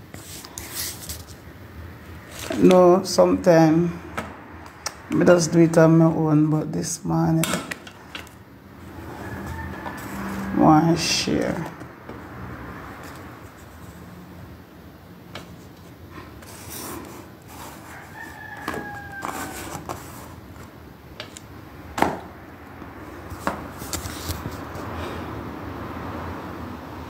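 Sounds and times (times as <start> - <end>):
rooster crowing: 8.8 - 10.8, 17.6 - 20.2.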